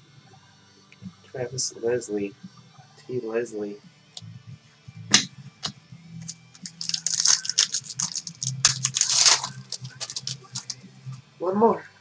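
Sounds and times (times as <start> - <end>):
wrapper crinkling and tearing: 6.2 - 10.8.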